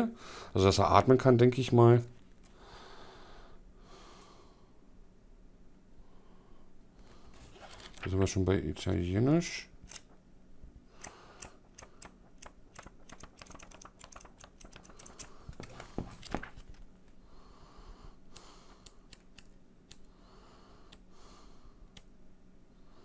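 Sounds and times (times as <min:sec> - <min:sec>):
pages rustling: 0:07.1 - 0:08.4, 0:11.8 - 0:16.9
paper ticks and crackles: 0:11.4 - 0:16.9.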